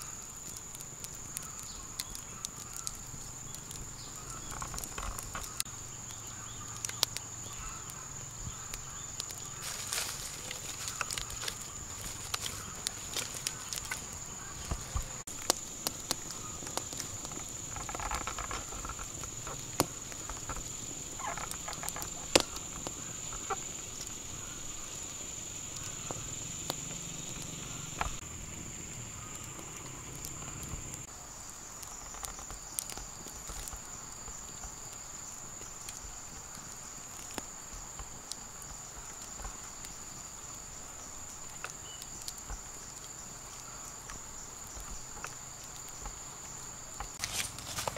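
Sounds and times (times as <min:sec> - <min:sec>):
campfire crackling and popping: 0:00.0 - 0:47.9.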